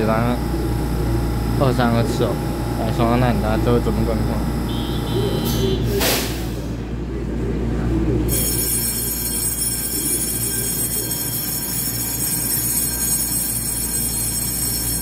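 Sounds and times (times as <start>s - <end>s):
electric train humming: 8.2s - 15.0s
high-pitched ringing: 8.2s - 15.0s.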